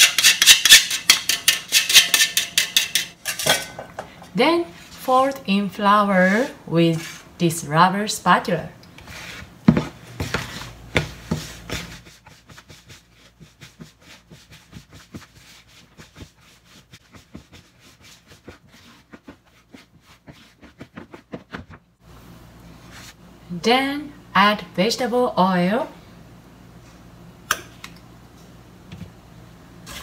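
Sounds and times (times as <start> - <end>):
spatula scraping bowl: 0.0 - 3.4, 4.5 - 7.7, 8.9 - 21.2.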